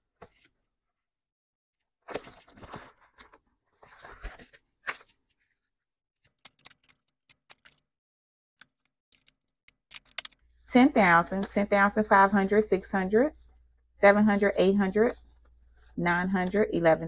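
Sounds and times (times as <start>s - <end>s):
paper and plastic rustling: 2.0s - 5.3s.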